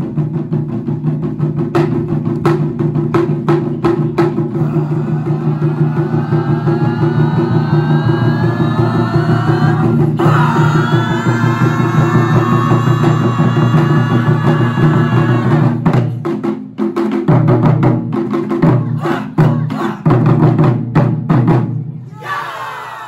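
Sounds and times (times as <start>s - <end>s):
taiko drum ensemble: 0.0s - 22.3s.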